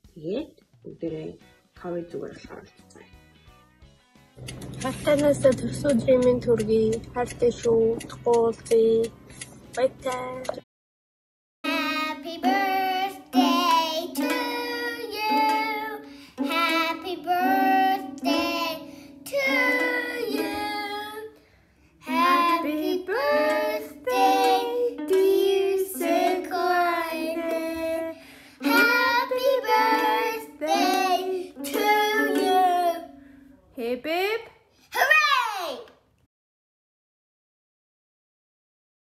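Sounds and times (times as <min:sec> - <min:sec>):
child singing: 0:11.7 - 0:21.3, 0:22.0 - 0:33.2.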